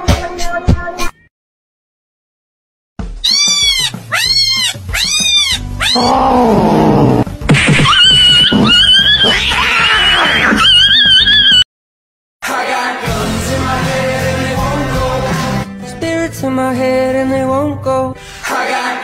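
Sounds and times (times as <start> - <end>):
cat meowing: 3.2 - 7.2
cat yowling: 3.2 - 7.2, 7.8 - 11.6.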